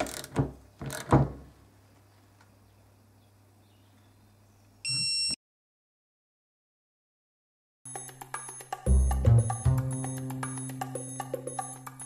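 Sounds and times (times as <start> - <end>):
torque wrench electronic beep: 4.9 - 5.4, 7.9 - 12.0.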